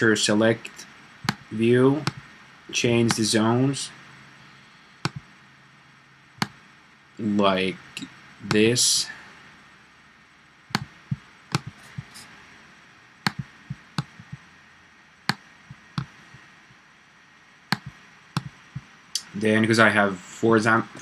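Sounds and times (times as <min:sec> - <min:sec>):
faint room noise: 0:00.0 - 0:21.0
computer mouse clicking: 0:01.2 - 0:02.2, 0:05.0 - 0:05.3, 0:10.7 - 0:12.2, 0:13.3 - 0:14.4, 0:17.7 - 0:18.9.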